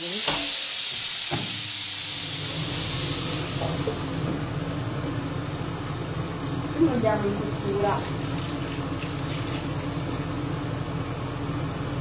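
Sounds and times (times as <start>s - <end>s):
faucet running into sink: 1.3s - 5.1s, 7.2s - 10.4s.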